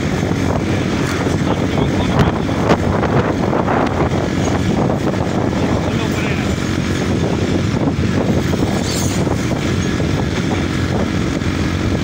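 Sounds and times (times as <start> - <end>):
moving train rumble: 0.0 - 12.0
wind buffeting microphone: 0.0 - 12.0.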